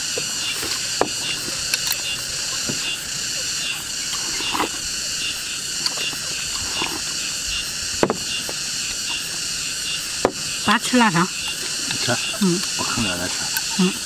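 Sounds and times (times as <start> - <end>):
insect chorus shrill drone: 0.0 - 14.0
slurping from a bowl: 0.5 - 5.2, 5.8 - 7.4.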